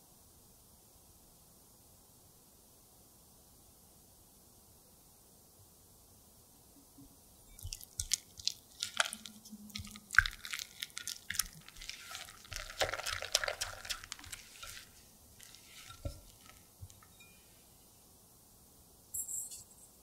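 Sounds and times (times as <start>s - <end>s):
spatula stirring wet batter: 7.5s - 17.5s.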